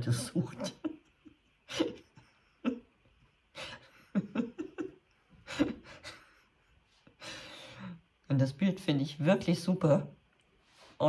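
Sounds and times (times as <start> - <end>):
woman chuckling softly: 0.5 - 7.2.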